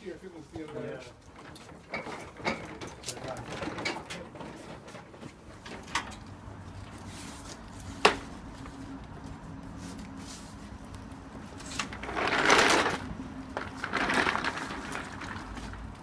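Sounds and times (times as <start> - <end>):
metal frame scraping and sliding: 11.6 - 15.8.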